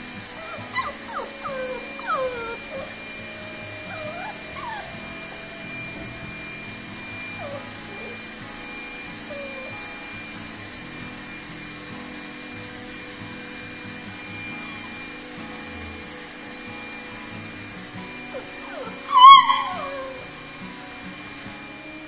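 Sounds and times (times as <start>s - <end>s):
puppy whining and yelping: 0.0s - 10.5s, 14.4s - 16.0s, 18.1s - 20.5s
vacuum cleaner humming: 0.0s - 22.0s.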